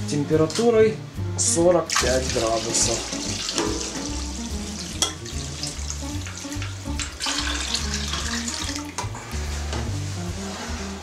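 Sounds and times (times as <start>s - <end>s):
background music: 0.0s - 11.0s
water pouring in a stream: 1.9s - 9.0s.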